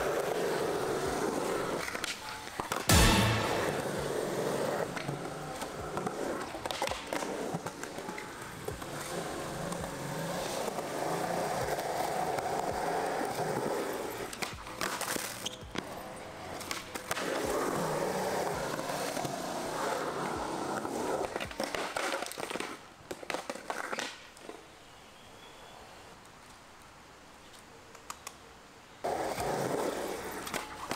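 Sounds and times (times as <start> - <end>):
skateboard wheels rolling on concrete: 0.0 - 30.9
skateboard clacks and knocks: 0.4 - 24.5.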